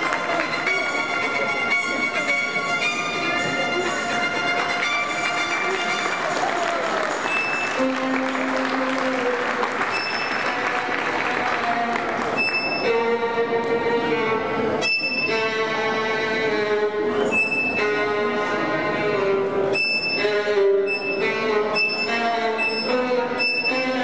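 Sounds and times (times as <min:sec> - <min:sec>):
applause: 0:00.0 - 0:01.0, 0:04.6 - 0:12.5
music with long held notes: 0:00.0 - 0:24.0.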